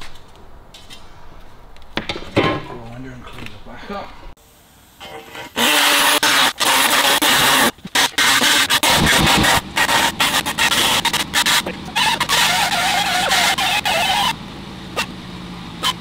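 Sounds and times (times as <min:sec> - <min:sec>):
air die grinder grinding metal: 0:05.0 - 0:15.2
wavering whine: 0:08.2 - 0:16.0.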